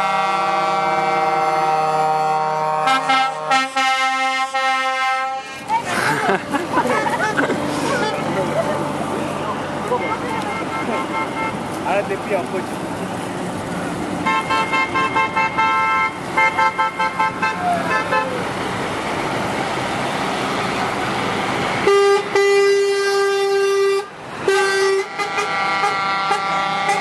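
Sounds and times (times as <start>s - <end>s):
air horn blast: 0.0s - 5.8s, 14.2s - 18.4s, 21.8s - 27.0s
truck horns tooting: 0.0s - 12.2s, 14.2s - 18.6s, 21.7s - 27.0s
highway traffic noise: 0.0s - 27.0s.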